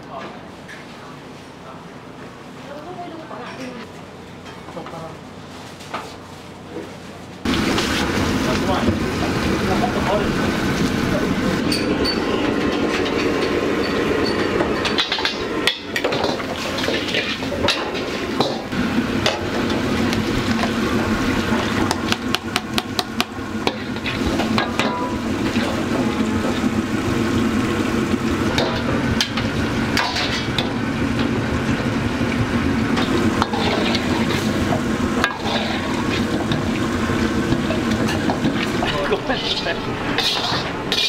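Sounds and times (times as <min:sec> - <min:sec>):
food frying: 0:07.5 - 0:11.6, 0:12.8 - 0:41.0
metal ladle scraping wok: 0:11.7 - 0:19.8, 0:23.6 - 0:26.7, 0:28.5 - 0:30.8, 0:32.9 - 0:41.0.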